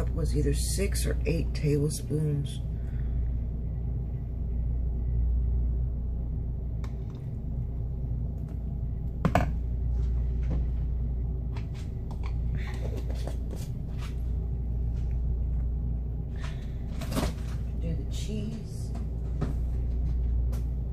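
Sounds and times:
steady low rumble: 0:00.0 - 0:20.9.

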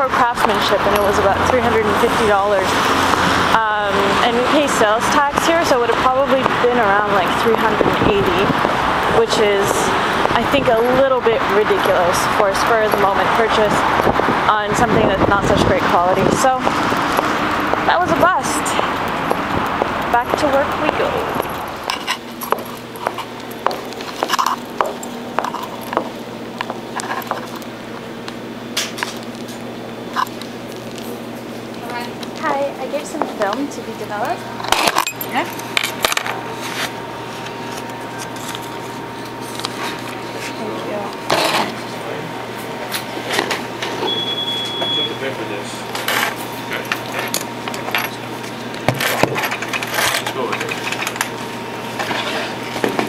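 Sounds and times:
steady low hum: 0:00.0 - 0:53.0
boot footsteps on tiled floor: 0:22.2 - 0:27.4
high beep: 0:44.0 - 0:45.2.

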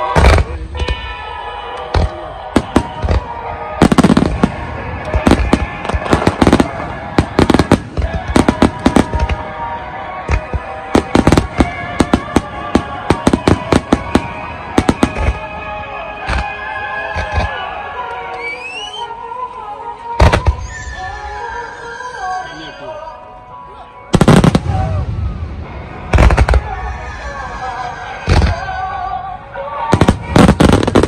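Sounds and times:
fireworks bursting: 0:00.0 - 0:19.0, 0:20.2 - 0:21.4, 0:24.1 - 0:29.2, 0:29.8 - 0:31.0
music playing: 0:00.0 - 0:31.0.

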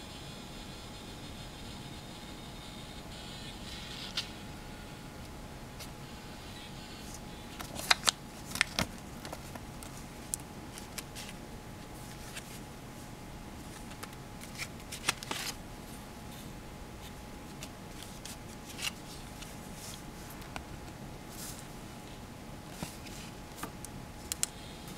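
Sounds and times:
paper rustling: 0:07.6 - 0:10.0, 0:10.7 - 0:12.6, 0:13.6 - 0:16.0, 0:17.0 - 0:20.4, 0:22.7 - 0:23.7.

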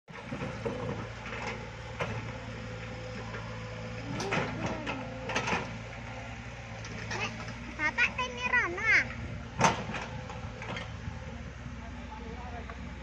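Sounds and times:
excavator diesel engine running: 0:00.1 - 0:13.0.

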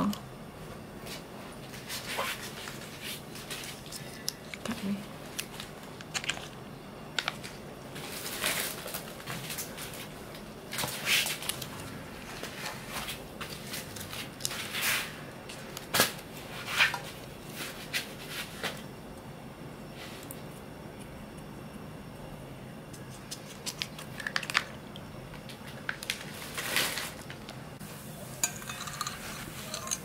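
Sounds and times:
rustling and scraping: 0:01.0 - 0:04.2, 0:07.4 - 0:18.8, 0:25.4 - 0:30.0.

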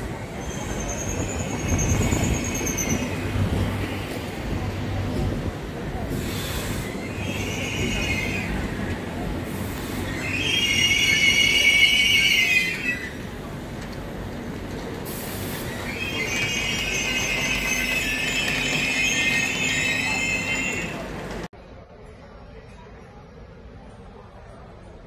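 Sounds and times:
train low rumble: 0:00.0 - 0:25.0
train wheels squealing: 0:00.3 - 0:03.4, 0:06.2 - 0:08.8, 0:09.8 - 0:13.2, 0:15.3 - 0:21.1.

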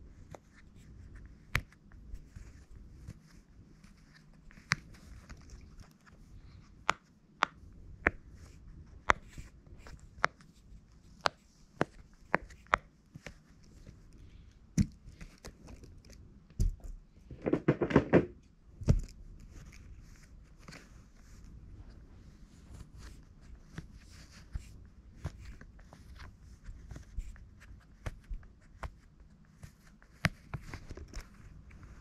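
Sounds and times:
handling noise: 0:17.3 - 0:18.4.

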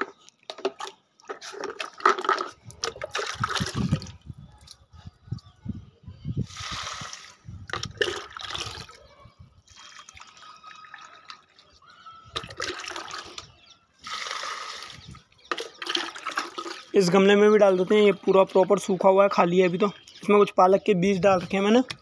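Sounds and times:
mug dipping into bucket of water: 0:00.5 - 0:04.2, 0:06.6 - 0:09.0, 0:09.8 - 0:11.5, 0:12.3 - 0:13.5, 0:14.2 - 0:17.0
water pouring onto soil: 0:06.4 - 0:09.0, 0:12.4 - 0:13.4, 0:14.0 - 0:17.1.

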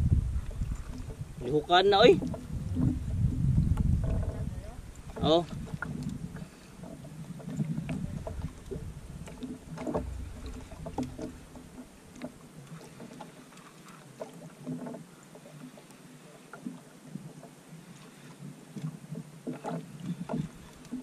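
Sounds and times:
low rumble: 0:00.0 - 0:01.4, 0:02.2 - 0:06.4, 0:07.9 - 0:12.2
water lapping: 0:00.0 - 0:21.0
knocks against wooden boat hull: 0:06.9 - 0:12.3.

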